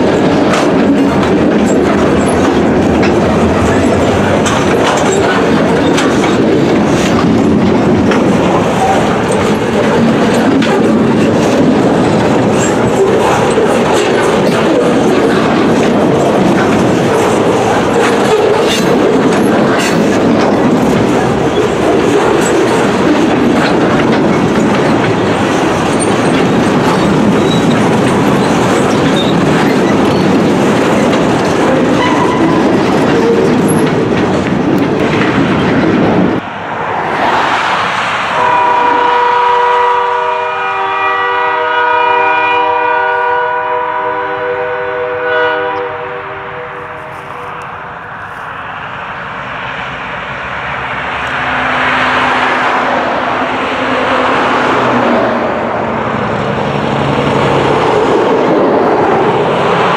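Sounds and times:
train wheels clicking over rail joints: 0:00.0 - 0:36.5
distant locomotive horn: 0:32.0 - 0:32.6, 0:38.3 - 0:47.8.

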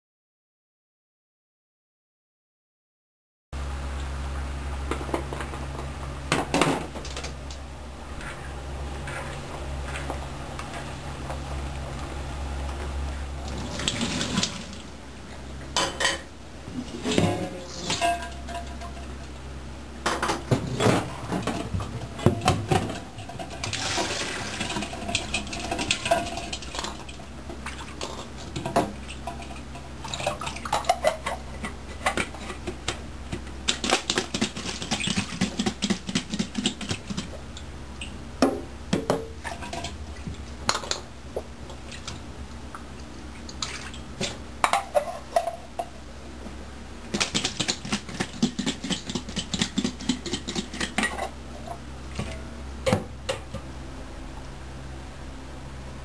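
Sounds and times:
eggs rattling in metal bowl: 0:21.1 - 0:37.4, 0:47.1 - 0:52.4.

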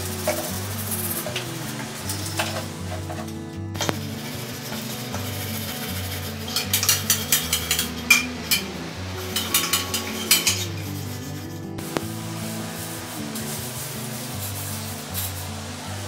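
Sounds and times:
kitchen utensils clinking and clattering: 0:00.0 - 0:11.4
background music: 0:00.0 - 0:16.0.

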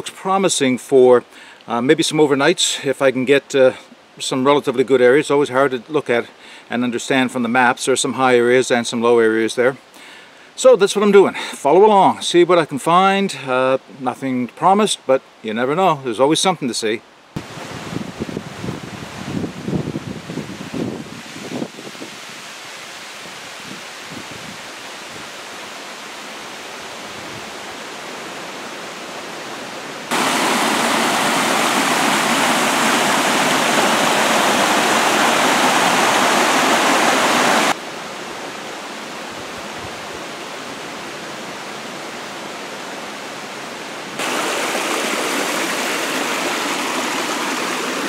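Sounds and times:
brook rushing over rocks: 0:30.1 - 0:37.8, 0:44.2 - 0:48.0.

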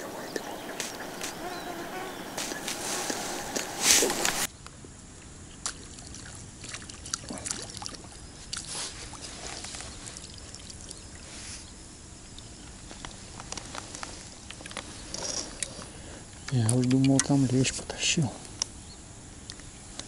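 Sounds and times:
water splashing and sloshing: 0:05.6 - 0:11.5.

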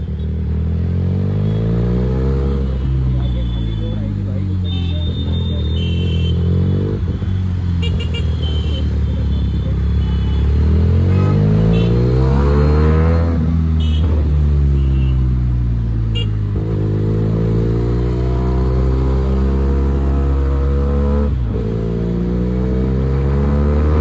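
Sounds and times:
motorcycle engine and exhaust: 0:00.0 - 0:24.0.

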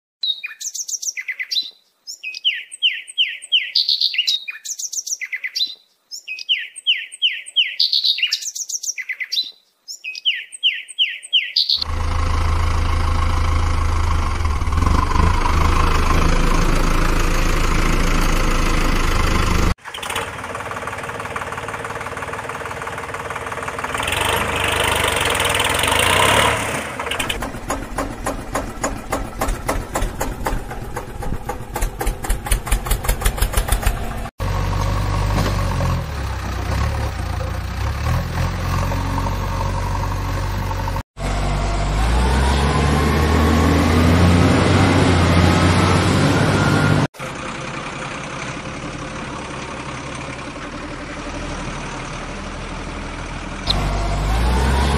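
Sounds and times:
bird chirping: 0:00.2 - 0:11.9
engine chugging: 0:11.8 - 0:42.1, 0:45.7 - 0:54.9
tractor engine humming: 0:11.8 - 0:54.9.

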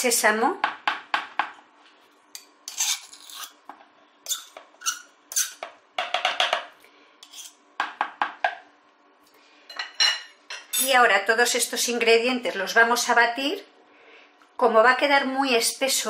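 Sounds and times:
knife and spoon scraping and clinking: 0:02.4 - 0:05.7, 0:07.2 - 0:07.6.

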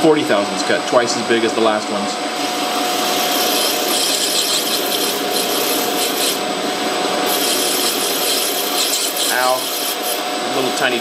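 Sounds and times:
lathe motor whine: 0:01.5 - 0:11.0
lathe cutting brass rasping hiss: 0:02.6 - 0:06.5, 0:07.2 - 0:11.0.

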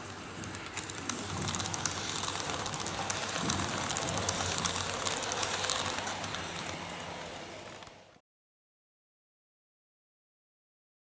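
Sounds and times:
model train running on track: 0:00.0 - 0:08.2
wheels clicking on rails: 0:00.0 - 0:08.2.

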